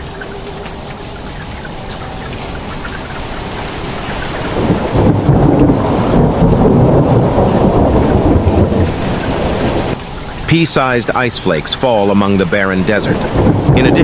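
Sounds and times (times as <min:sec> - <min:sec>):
floodwater rushing down a street: 0:00.0 - 0:14.0.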